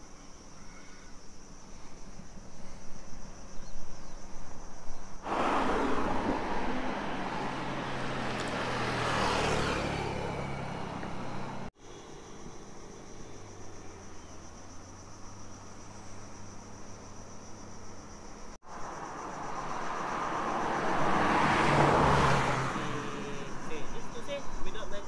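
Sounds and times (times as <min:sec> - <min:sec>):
insects chirring: 0:00.0 - 0:25.0
motorcycle passing: 0:05.2 - 0:11.7, 0:18.7 - 0:24.7
cars passing: 0:05.2 - 0:11.8, 0:12.7 - 0:25.0.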